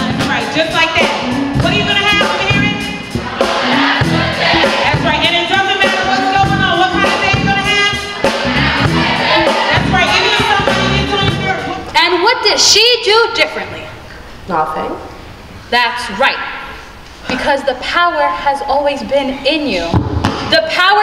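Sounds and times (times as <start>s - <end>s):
drum kit beat: 0.0s - 13.6s
electric bass: 1.2s - 11.7s.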